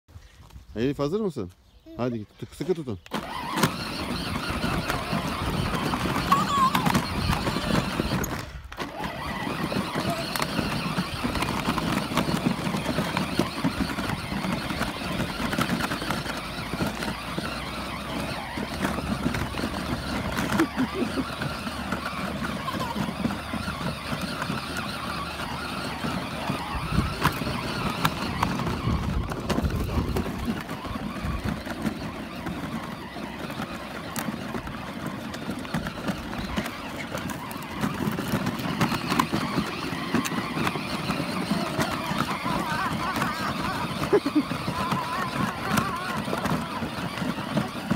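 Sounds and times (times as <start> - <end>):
plastic wheels rolling over stones: 0.4 - 47.9
toy car electric motor running: 3.0 - 47.9.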